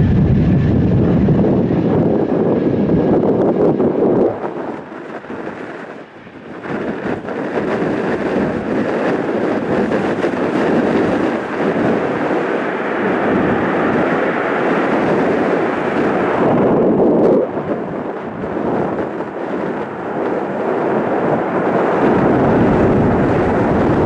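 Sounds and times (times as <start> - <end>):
jet engine rumbling: 0.0 - 24.0.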